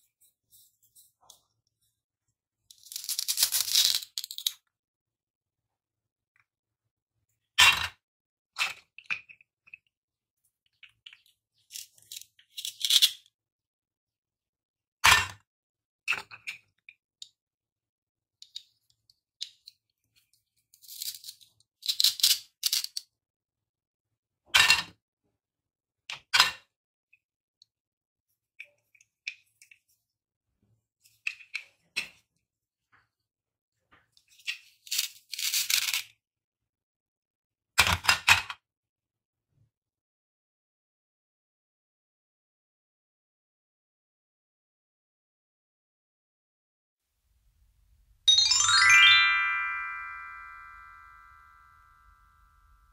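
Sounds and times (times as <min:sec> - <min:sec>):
plastic pieces clacking: 0:02.7 - 0:04.7, 0:10.8 - 0:13.3, 0:20.8 - 0:23.1, 0:34.4 - 0:36.1
velcro tearing: 0:02.8 - 0:04.4.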